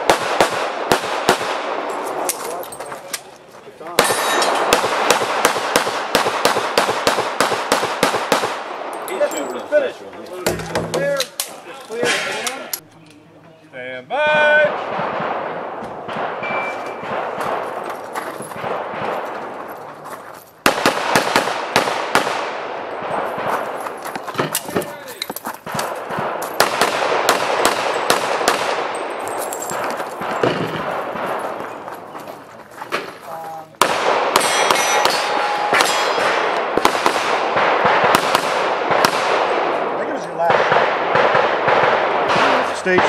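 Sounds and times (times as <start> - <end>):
pistol shots echoing: 0.0 - 2.5, 3.9 - 9.4, 14.7 - 19.7, 20.6 - 24.9, 25.6 - 31.9, 33.8 - 43.0
steel targets clanging: 4.0 - 4.7, 10.5 - 12.8, 34.4 - 36.6
handgun shots: 33.8 - 39.4.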